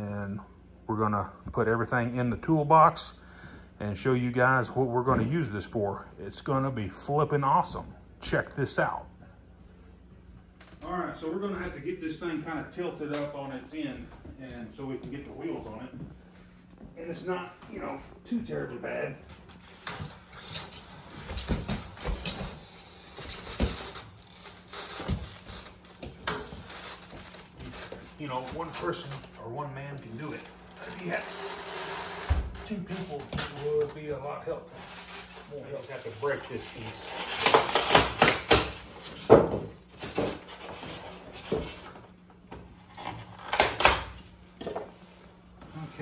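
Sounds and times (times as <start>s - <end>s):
packing foam and cardboard breaking: 36.9s - 39.0s.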